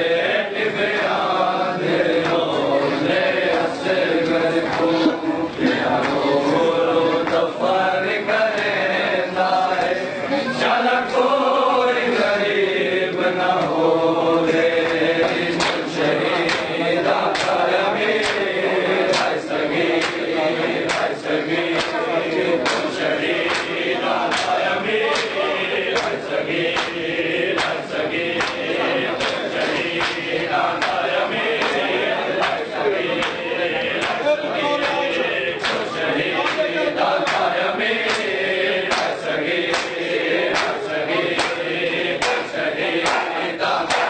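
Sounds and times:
men chanting in chorus: 0.0s - 44.0s
hands slapping chests: 14.8s - 17.6s, 18.2s - 18.5s, 19.1s - 19.4s, 20.0s - 20.2s, 20.9s - 21.1s, 21.8s - 22.0s, 22.6s - 27.0s, 27.6s - 27.8s, 28.4s - 32.6s, 37.2s - 41.6s, 42.2s - 44.0s.

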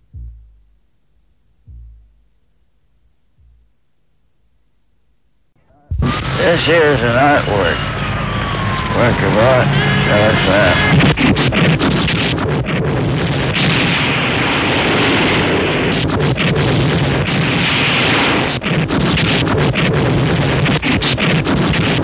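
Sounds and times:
steady low rumble: 0.0s - 4.0s, 5.7s - 22.0s
distorted static and crackle: 4.8s - 22.0s.

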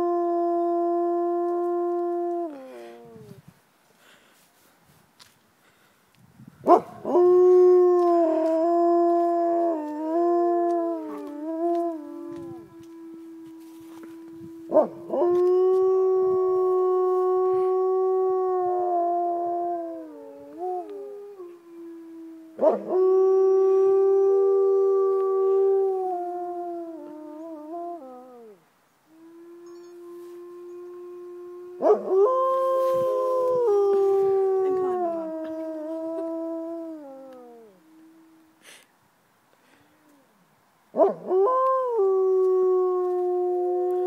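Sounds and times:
wolves howling: 7.0s - 28.6s.

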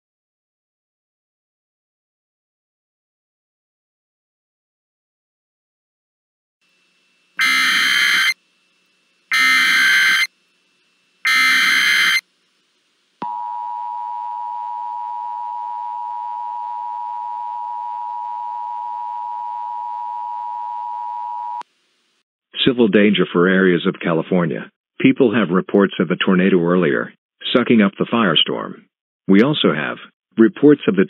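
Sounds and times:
digital data noise bursts: 7.4s - 8.4s, 9.3s - 10.3s, 11.2s - 12.3s
two-tone alert signal: 7.4s - 8.4s, 9.3s - 10.3s, 11.3s - 12.2s.

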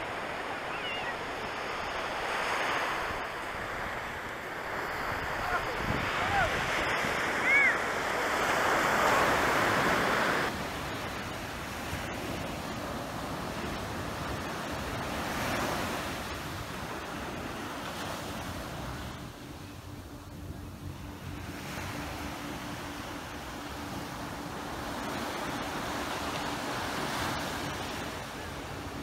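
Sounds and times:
surf washing onto beach: 0.0s - 19.2s
faint steady hum: 0.0s - 29.0s
wind buffeting microphone: 0.0s - 29.0s.

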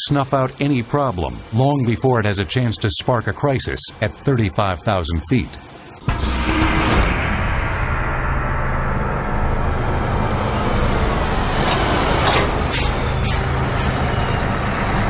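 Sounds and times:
large vehicle engine running: 6.1s - 15.0s.

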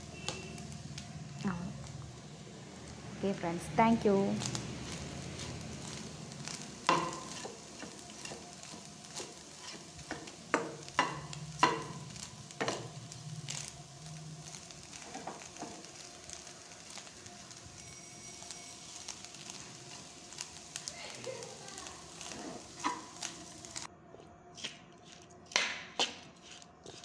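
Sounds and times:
light sizzle: 0.0s - 23.9s
spoon scraping a pan: 4.8s - 12.9s, 14.9s - 15.8s, 22.2s - 23.6s
spoon knocking against pan: 10.1s - 12.0s.

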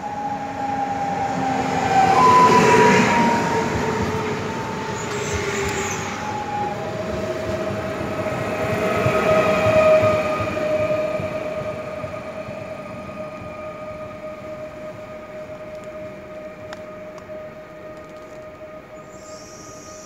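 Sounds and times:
train traction whine: 0.0s - 20.0s
train wheels rumbling on rails: 0.0s - 20.0s.

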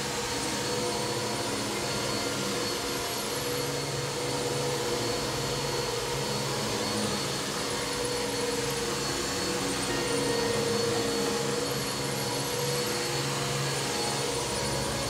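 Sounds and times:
vacuum cleaner running: 0.0s - 15.0s.

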